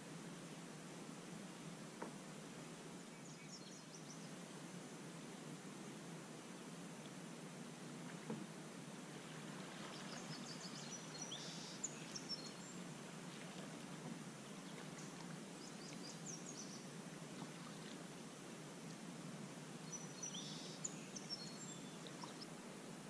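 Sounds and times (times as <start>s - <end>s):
small birds chirping: 9.8s - 12.9s, 14.4s - 17.9s, 19.8s - 22.6s.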